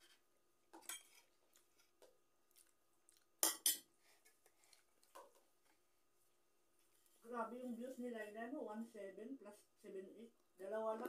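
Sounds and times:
faint clicks of eating: 0:01.4 - 0:03.4, 0:04.2 - 0:05.8.

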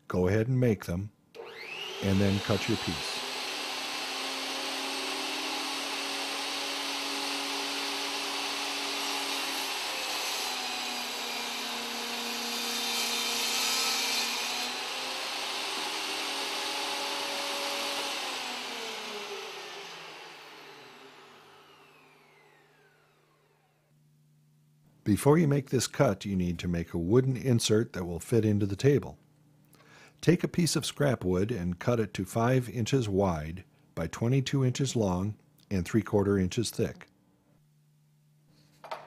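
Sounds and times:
saw motor whine spinning down: 0:01.4 - 0:10.8, 0:14.5 - 0:23.9
table saw cutting wood: 0:01.4 - 0:23.9.

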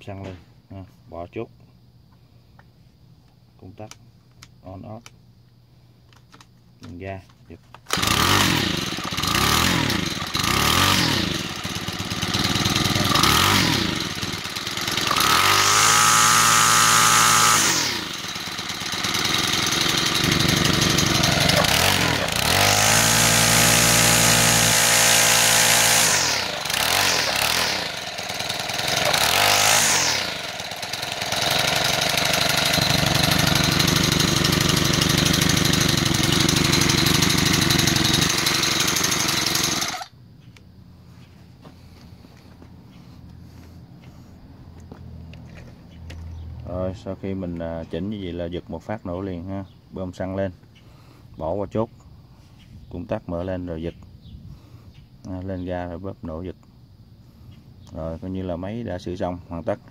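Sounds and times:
string trimmer engine revving: 0:07.8 - 0:40.1.

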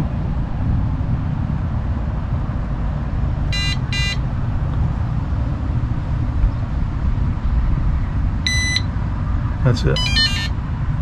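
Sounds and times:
steady low rumble: 0:00.0 - 0:11.0
alert indicator beeps: 0:03.6 - 0:04.2, 0:08.5 - 0:08.9, 0:10.0 - 0:10.6.

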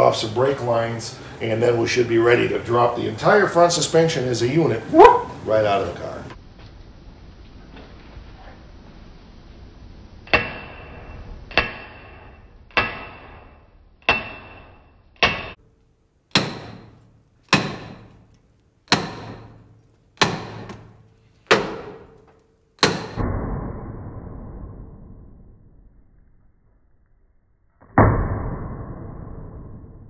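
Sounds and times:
hammer clanking on steel bar: 0:10.3 - 0:15.6, 0:16.3 - 0:18.3, 0:18.9 - 0:23.2.

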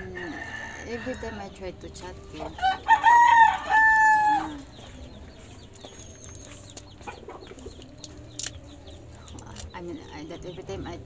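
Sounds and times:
rooster crowing: 0:00.0 - 0:01.5, 0:02.6 - 0:04.6.

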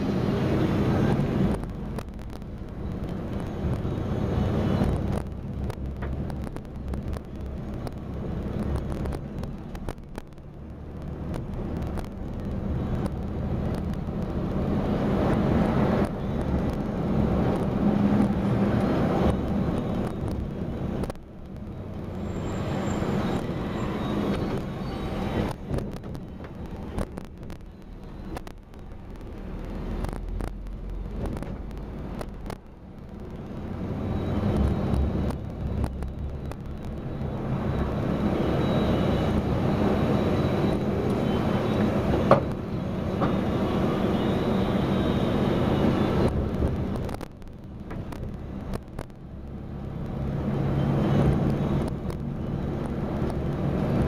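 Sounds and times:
vehicle engine and road noise: 0:00.0 - 0:54.0
scattered clicks: 0:01.4 - 0:03.9, 0:04.8 - 0:14.6, 0:25.4 - 0:33.8, 0:34.5 - 0:37.5, 0:46.2 - 0:50.2.

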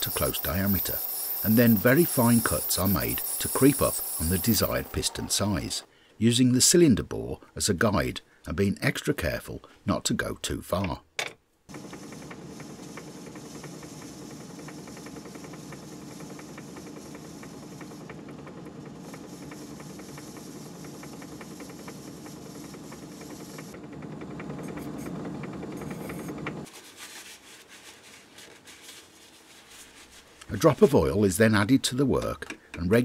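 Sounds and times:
lathe running with fine ticking: 0:00.0 - 0:05.4, 0:11.7 - 0:26.7.

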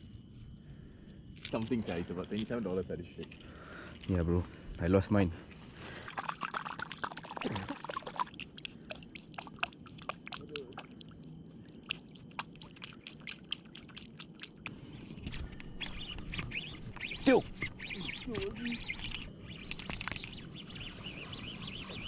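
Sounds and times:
hand splashing water: 0:06.1 - 0:11.1.

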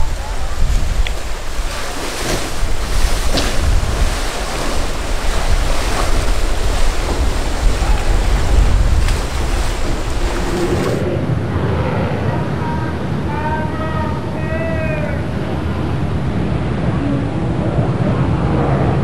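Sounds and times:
wind buffeting microphone: 0:00.0 - 0:13.2, 0:14.2 - 0:19.0
surf and waves rushing: 0:00.0 - 0:19.0.

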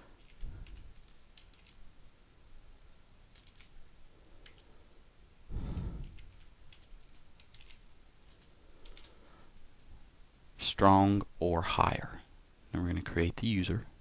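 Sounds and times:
soft keyboard keystrokes: 0:00.2 - 0:01.8, 0:03.3 - 0:03.8, 0:04.4 - 0:04.7, 0:06.0 - 0:09.2.

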